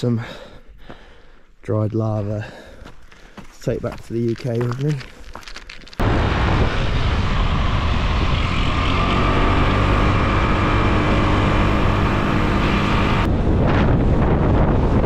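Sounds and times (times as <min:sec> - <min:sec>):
wind buffeting microphone: 0:06.0 - 0:10.2, 0:13.1 - 0:15.0.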